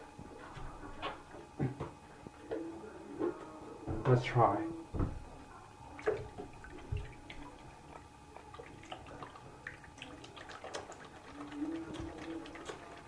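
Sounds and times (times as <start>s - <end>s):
water drips: 6.0s - 13.0s.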